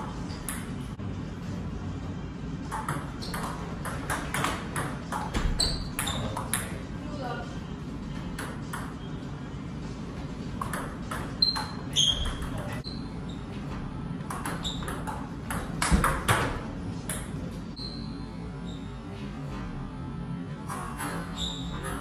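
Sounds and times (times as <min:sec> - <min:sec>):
table tennis ball hits and bounces: 0:00.0 - 0:01.0, 0:02.6 - 0:06.8, 0:08.1 - 0:09.1, 0:10.5 - 0:12.9, 0:14.2 - 0:17.4.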